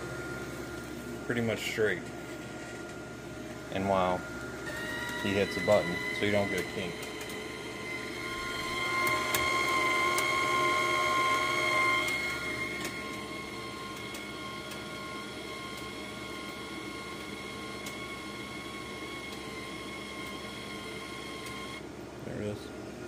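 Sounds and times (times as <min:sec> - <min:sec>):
wire-feed motor whine: 0:00.0 - 0:22.6.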